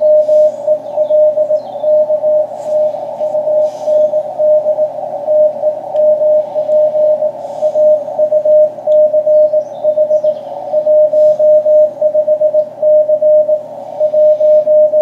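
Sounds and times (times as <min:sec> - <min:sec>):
morse code tone: 0:00.0 - 0:15.0
radio band noise hiss: 0:00.0 - 0:15.0.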